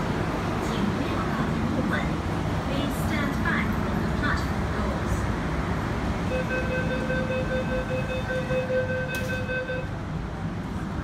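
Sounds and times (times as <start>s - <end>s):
rapid electronic warning beeps: 6.3s - 9.9s.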